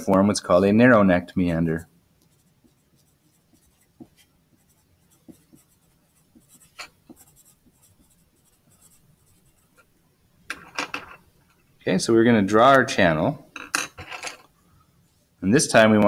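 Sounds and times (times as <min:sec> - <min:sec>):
pencil scratching on paper: 0:02.2 - 0:09.9.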